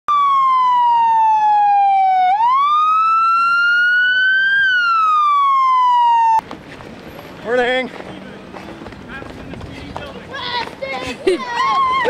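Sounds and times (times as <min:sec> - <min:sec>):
police siren wailing: 0:00.1 - 0:06.4.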